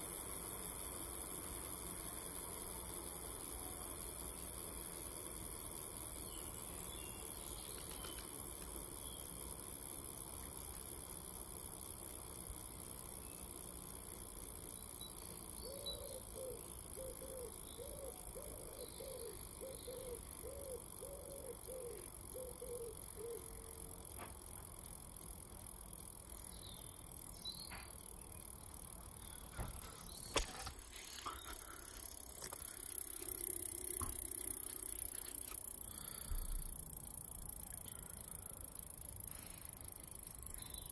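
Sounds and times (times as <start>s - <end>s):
bike wheel hub whirring: 0.0s - 40.9s.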